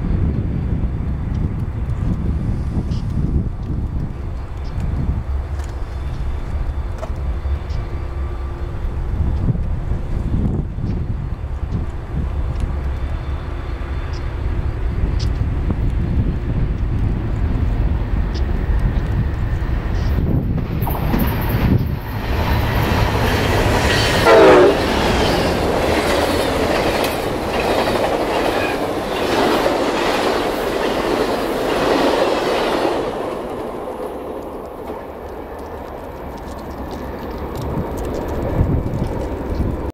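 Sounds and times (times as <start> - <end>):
locomotive rumble: 0.0 - 39.9
train wheels clickety-clack: 1.2 - 8.2, 9.0 - 39.9
train horn blast: 23.2 - 25.7.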